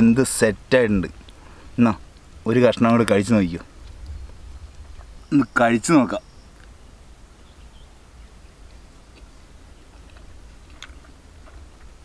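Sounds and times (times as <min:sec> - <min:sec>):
man chewing: 0:09.1 - 0:12.0.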